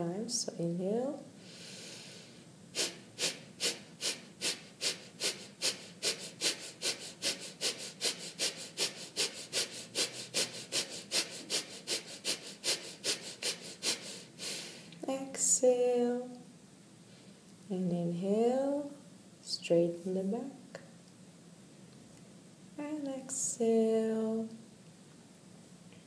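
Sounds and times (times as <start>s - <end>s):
woman's voice: 0.0s - 1.3s, 15.0s - 16.4s, 17.7s - 20.8s, 22.8s - 24.6s
sharp breath: 1.4s - 14.9s
forceful nasal exhalations: 1.4s - 15.0s.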